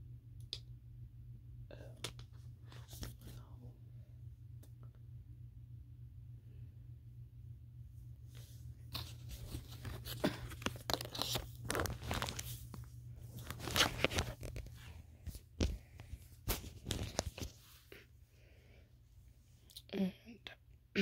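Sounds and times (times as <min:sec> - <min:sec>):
packaging crinkling: 0:09.0 - 0:14.9, 0:16.5 - 0:17.5.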